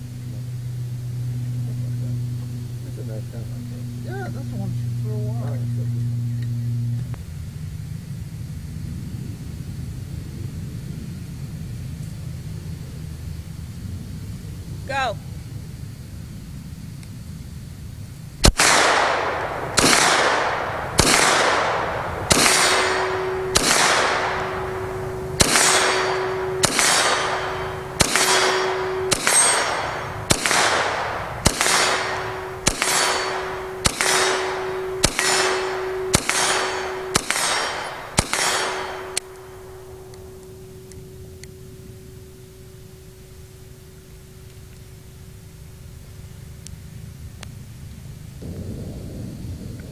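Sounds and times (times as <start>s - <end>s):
gunshots with echo: 18.4s - 40.4s.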